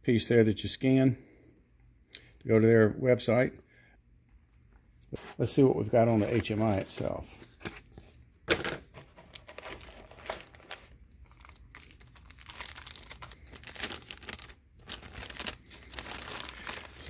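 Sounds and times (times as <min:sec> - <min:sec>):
plastic bag crinkling: 0:09.1 - 0:17.0.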